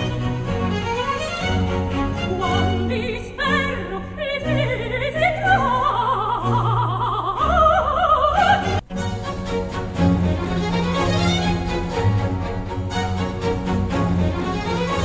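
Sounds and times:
orchestra playing: 0.0 - 4.0, 8.4 - 15.0
operatic singing: 0.0 - 15.0.

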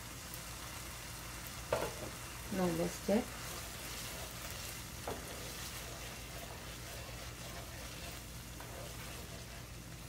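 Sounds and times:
sauce sizzling in a pan: 0.0 - 10.0
wooden spoon knocking a pan: 1.7 - 2.2, 5.0 - 5.4.

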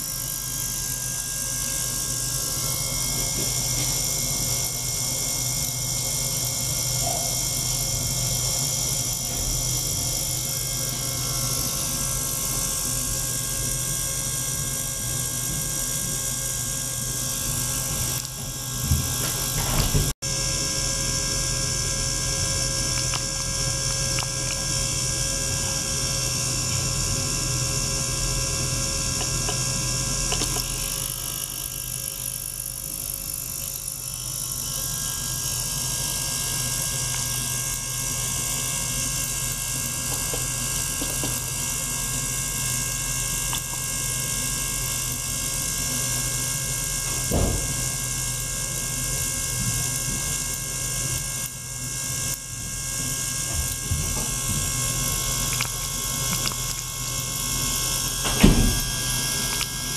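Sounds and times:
ultrasonic cleaner hum and hiss: 53.4 - 59.9.

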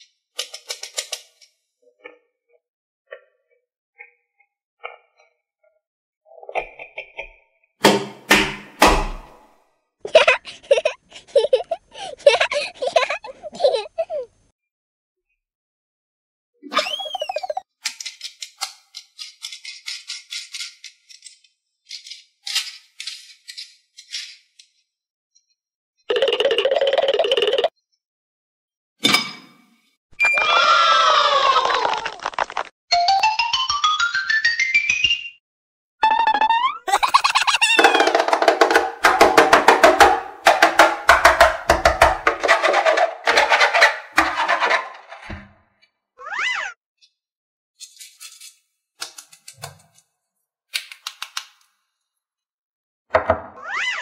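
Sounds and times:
pitched percussive strikes: 7.8 - 9.5, 37.7 - 42.5.

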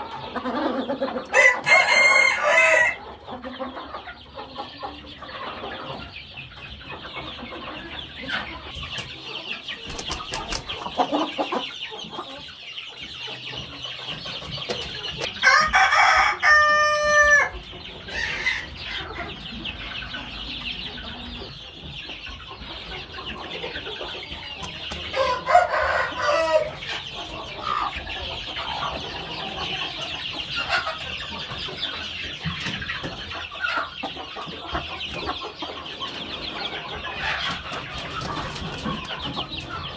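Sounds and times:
chickens clucking: 0.0 - 39.9
rooster crowing: 1.3 - 3.0, 15.4 - 17.5, 25.1 - 26.8.

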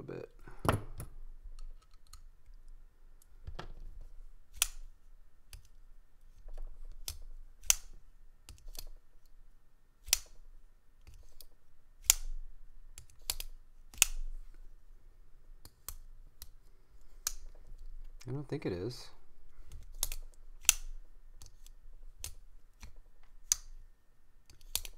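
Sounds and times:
folding knife metallic clicks: 4.5 - 4.8, 10.0 - 10.4, 13.0 - 14.2, 19.7 - 23.7, 24.5 - 24.9.

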